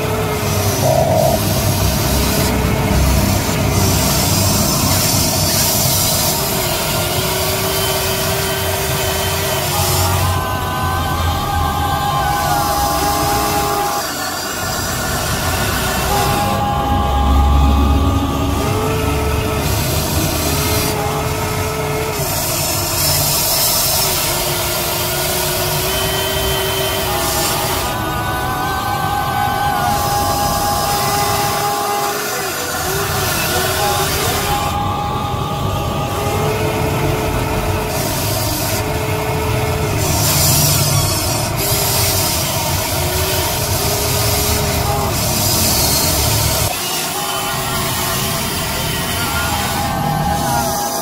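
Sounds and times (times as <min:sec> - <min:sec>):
steady low drone: 0:00.0 - 0:13.8, 0:14.5 - 0:23.0
toy electric motors whining: 0:00.0 - 0:51.0.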